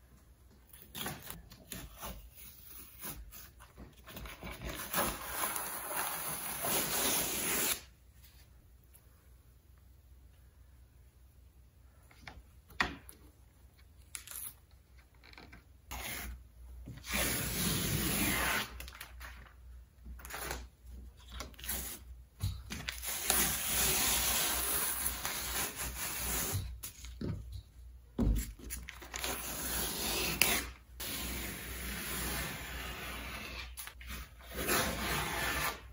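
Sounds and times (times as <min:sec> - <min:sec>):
paper wallpaper ripping: 0:04.6 - 0:07.9, 0:29.0 - 0:35.9.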